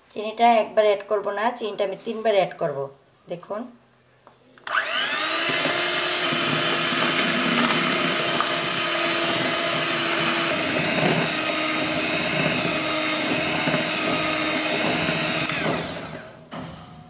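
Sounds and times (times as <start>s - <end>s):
electric hand mixer whipping: 4.7s - 16.4s.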